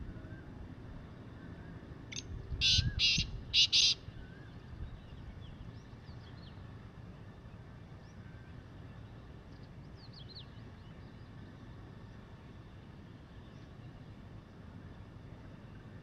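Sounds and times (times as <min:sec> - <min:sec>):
small birds chirping: 0:02.1 - 0:04.0.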